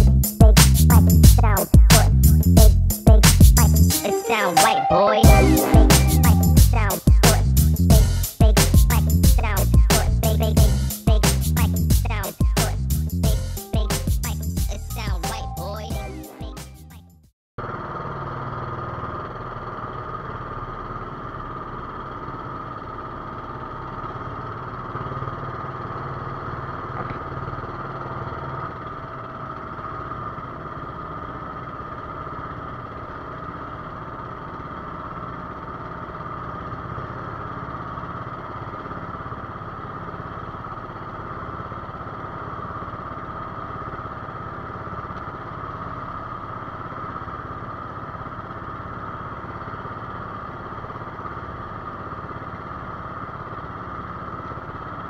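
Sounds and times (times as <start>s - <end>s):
boat engine running: 0.0s - 16.1s, 17.6s - 55.0s.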